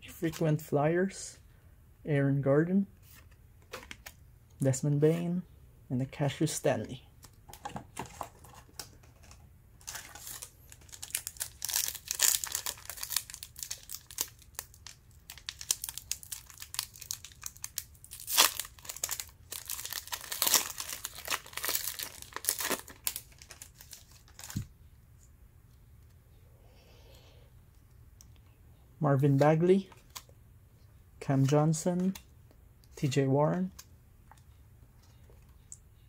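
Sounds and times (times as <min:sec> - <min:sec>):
wrapper crinkling and tearing: 0:09.2 - 0:24.6.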